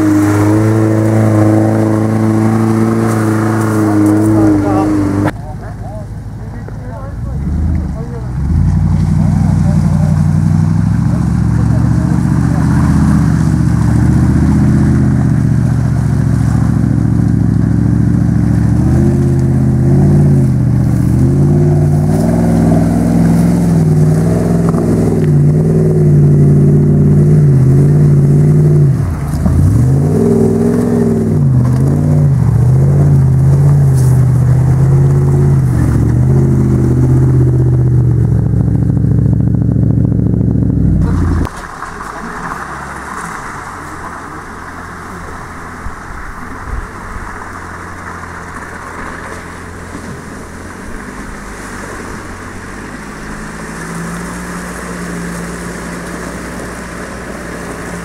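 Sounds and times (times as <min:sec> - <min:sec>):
engine revving hard: 0:00.0 - 0:05.3, 0:07.4 - 0:41.5.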